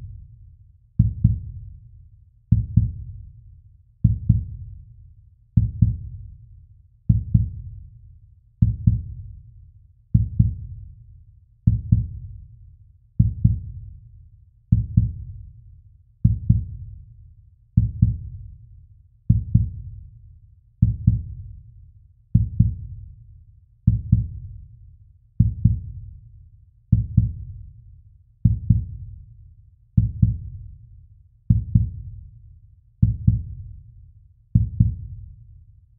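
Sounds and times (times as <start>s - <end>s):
slow heartbeat thumps: 1.0s - 1.6s, 2.5s - 3.1s, 4.0s - 4.6s, 5.6s - 6.1s, 7.1s - 7.7s, 8.6s - 9.2s, 10.2s - 10.7s, 11.7s - 12.2s, 14.7s - 15.3s, 16.2s - 16.8s, 17.8s - 18.4s, 19.3s - 19.8s, 20.8s - 21.4s, 22.4s - 22.9s, 23.9s - 24.4s, 25.4s - 26.0s, 26.9s - 27.5s, 28.4s - 29.0s, 30.0s - 30.6s, 31.5s - 32.1s, 33.0s - 33.7s, 34.6s - 35.2s.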